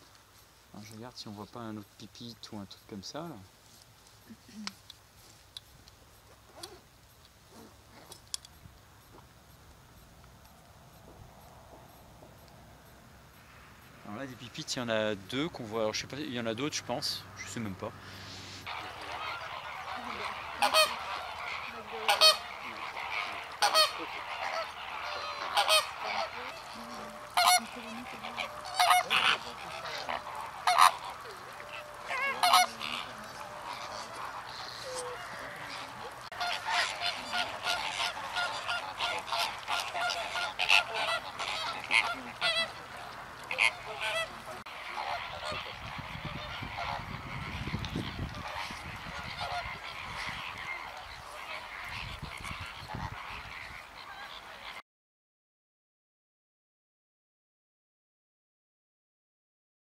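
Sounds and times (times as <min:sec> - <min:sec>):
flock of birds chattering: 0:00.0 - 0:54.8
loud bird honks: 0:17.1 - 0:54.8.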